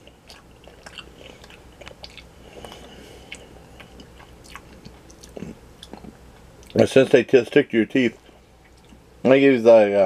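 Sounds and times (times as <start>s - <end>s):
person chewing candy: 0.0s - 6.8s.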